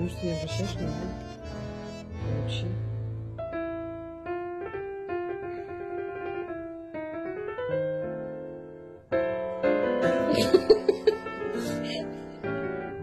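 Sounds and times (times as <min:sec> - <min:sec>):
gentle solo piano music: 0:02.4 - 0:13.0.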